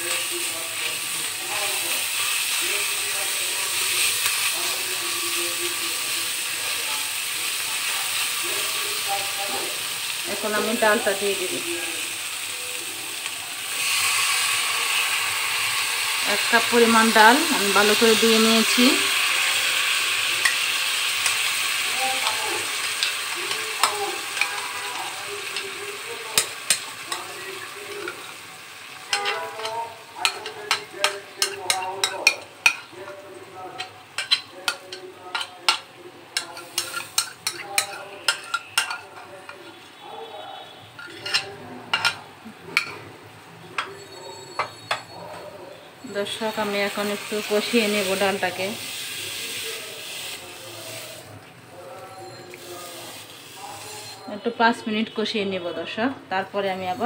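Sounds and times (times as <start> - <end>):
onions sizzling in hot oil: 0.0 - 39.8, 46.0 - 51.3, 52.0 - 57.0
spatula stirring in a pan: 13.2 - 39.9
spatula scraping and tapping: 29.1 - 33.2, 33.8 - 39.6, 41.0 - 43.0.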